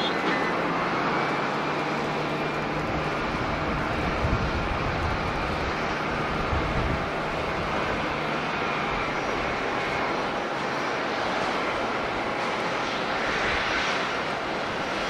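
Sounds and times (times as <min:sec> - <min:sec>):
jet engines roaring: 0:00.0 - 0:15.0
wind buffeting microphone: 0:02.1 - 0:09.8.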